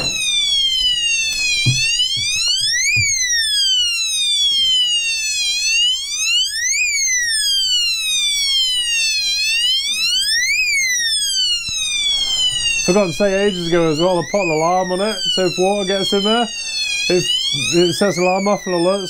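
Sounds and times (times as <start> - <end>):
high-water alarm siren: 0.0 - 19.0
light knocks: 1.6 - 3.2.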